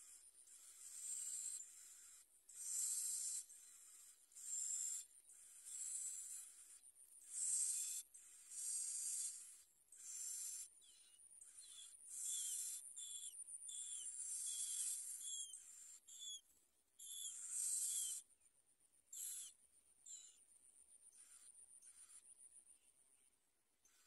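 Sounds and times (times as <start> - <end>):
nestlings hissing calls: 0.5 - 6.5, 7.2 - 10.7, 11.5 - 13.2, 13.8 - 16.3, 17.0 - 18.2.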